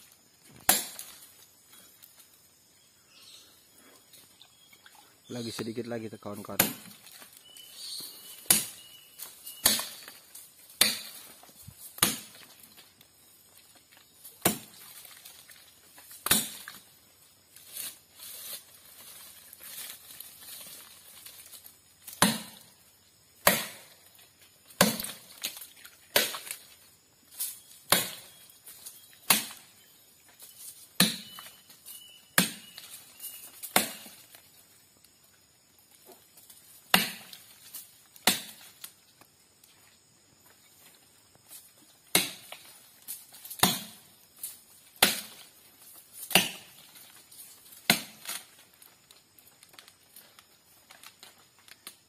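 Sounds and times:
palm trunk chopped by hand: 0.5s - 1.3s, 6.5s - 7.4s, 8.3s - 12.8s, 14.2s - 15.4s, 16.0s - 16.9s, 22.0s - 22.8s, 23.4s - 24.0s, 24.7s - 29.8s, 30.8s - 31.6s, 32.3s - 34.4s, 36.8s - 39.0s, 42.0s - 42.7s, 43.4s - 44.2s, 44.8s - 45.6s, 46.2s - 47.0s, 47.6s - 48.6s.

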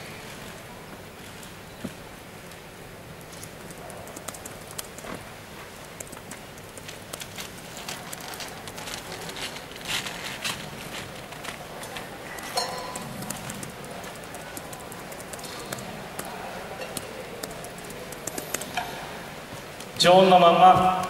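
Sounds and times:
steady background hum: 0.0s - 21.0s
small scattered clicks: 3.3s - 5.2s, 5.8s - 9.6s, 11.2s - 18.9s.

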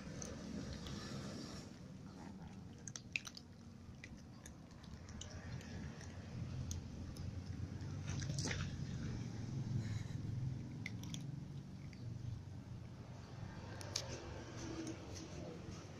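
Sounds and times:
cats crunching dry kibble: 10.6s - 12.4s.

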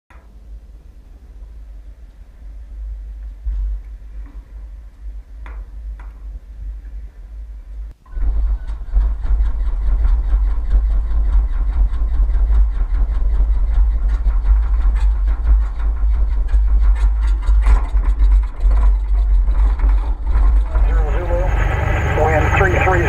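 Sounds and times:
wind rumble on microphone: 0.6s - 21.3s
propeller plane engine idling: 8.1s - 23.0s.

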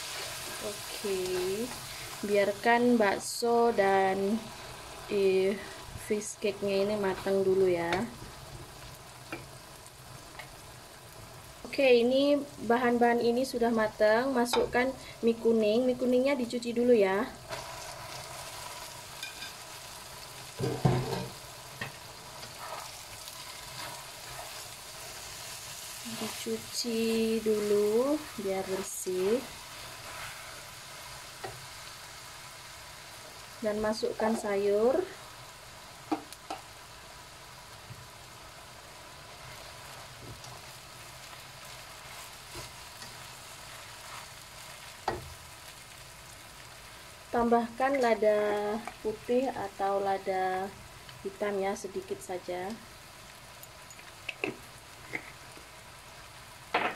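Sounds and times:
noodles sizzling in oil: 0.0s - 56.9s
spatula knocking and scraping wok: 20.6s - 23.0s, 36.1s - 36.7s, 44.9s - 45.4s.

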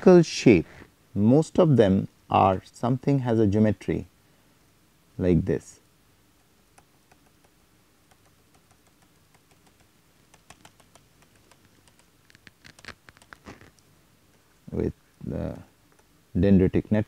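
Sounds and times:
stylus tapping on drawing tablet: 6.4s - 13.4s.

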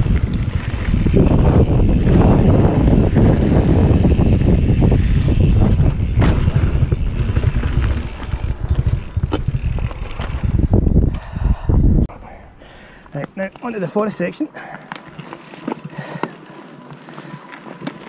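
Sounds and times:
tyres on dirt: 0.0s - 11.2s, 12.9s - 18.0s
wind buffeting microphone: 0.0s - 13.1s
bike knocking over bumps: 4.4s - 10.6s.

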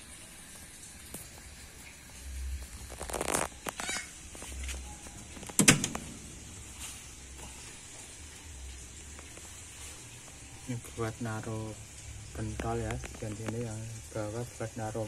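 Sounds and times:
metal latch clicks: 5.4s - 6.1s
latch clack: 5.4s - 6.2s.

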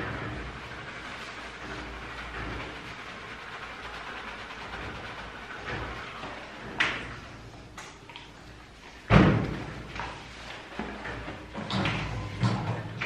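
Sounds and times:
wet scrubbing: 0.0s - 11.5s
thump against metal tub: 9.1s - 9.9s.

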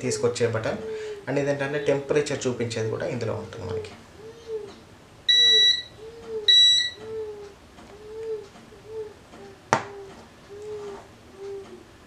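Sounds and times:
high electronic beeps: 5.3s - 7.0s.

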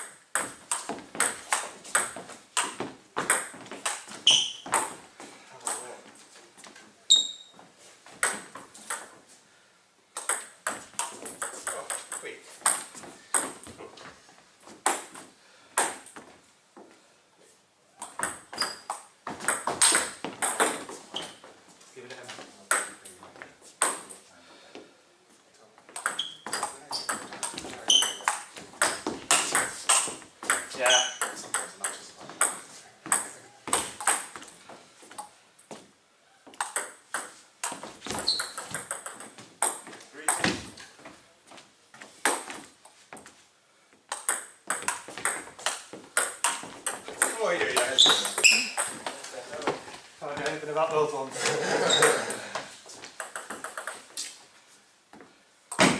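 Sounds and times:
table tennis rally: 0.0s - 9.4s, 10.1s - 16.3s, 17.9s - 24.9s, 25.8s - 35.4s, 36.3s - 41.2s, 42.0s - 43.0s, 44.0s - 54.5s
brief high squeak: 7.1s - 7.6s.

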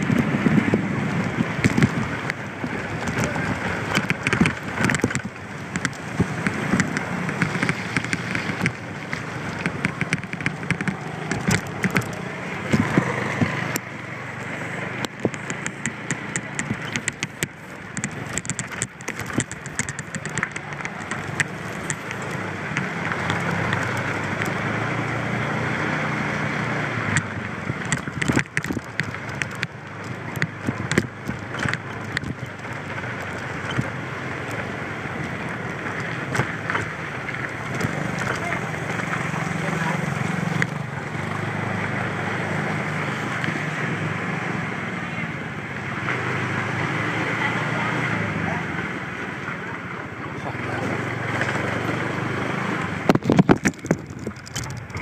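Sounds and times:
wind rushing over microphone: 0.0s - 25.5s, 52.0s - 55.0s
crackling clicks: 0.0s - 45.0s, 50.5s - 55.0s
moped engine running: 0.0s - 55.0s.

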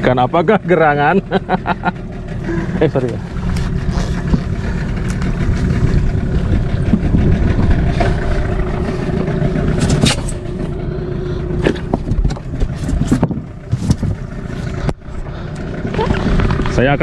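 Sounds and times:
boat motor rumbling: 0.0s - 17.0s
gear scraping: 2.4s - 15.2s
wind on microphone: 3.9s - 9.2s.

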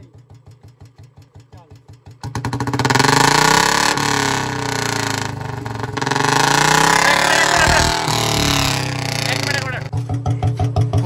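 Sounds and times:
motorcycle engine revving: 2.0s - 11.0s
low thumps: 6.6s - 9.5s.

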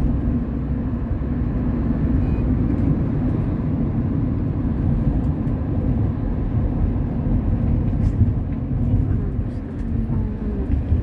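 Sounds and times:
bus engine and tyres rumbling: 0.0s - 11.0s.

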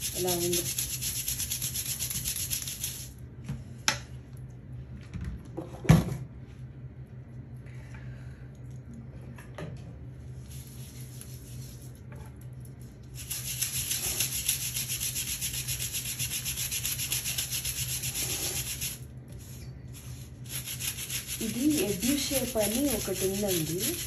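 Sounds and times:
scrub brush scrubbing foam toy: 0.0s - 3.1s, 13.2s - 24.0s.

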